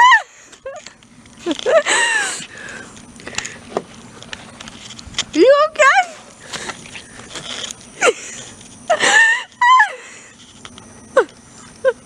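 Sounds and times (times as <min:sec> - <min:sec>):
person crying out in pain: 0:08.9 - 0:10.2.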